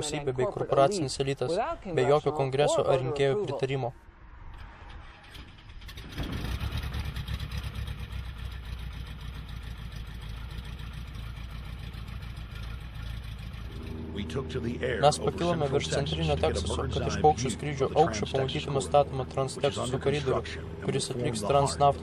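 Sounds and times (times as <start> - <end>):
propeller plane engine running: 5.1 - 22.0.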